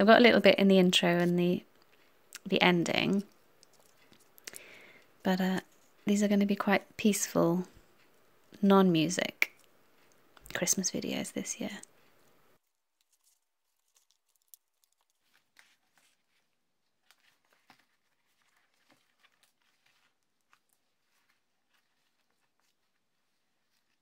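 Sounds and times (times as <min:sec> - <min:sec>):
paper rustling: 0:12.6 - 0:24.0.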